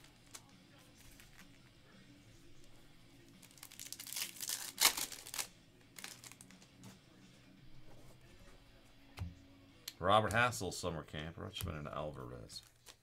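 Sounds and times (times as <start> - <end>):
foil wrapper tearing and crinkling: 3.4 - 6.5.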